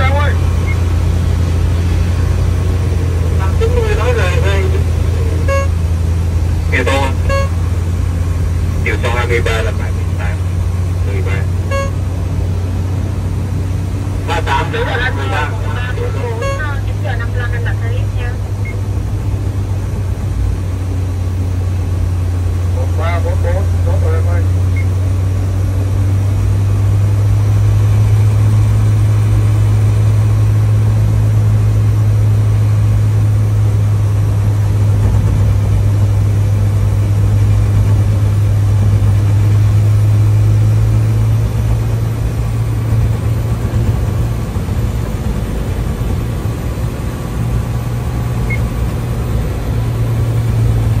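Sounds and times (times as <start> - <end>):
tug engine low drone: 0.0 - 51.0.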